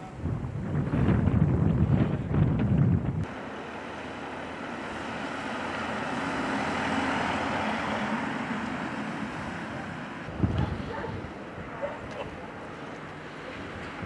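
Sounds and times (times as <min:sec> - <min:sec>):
low wind rumble on microphone: 0:00.0 - 0:03.4, 0:08.8 - 0:14.0
car driving past: 0:03.3 - 0:11.5.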